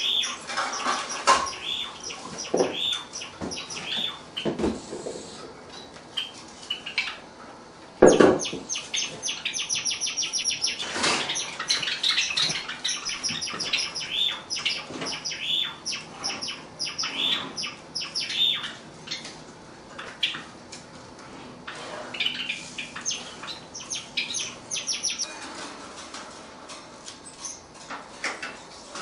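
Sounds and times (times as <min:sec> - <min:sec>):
sparrow singing: 0:00.0 - 0:04.5, 0:08.1 - 0:19.2, 0:22.2 - 0:25.3.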